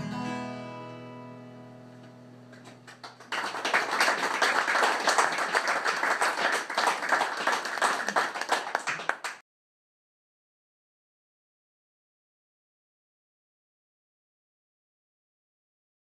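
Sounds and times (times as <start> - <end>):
acoustic guitar chord: 0.0 - 2.9
audience clapping: 2.5 - 9.4.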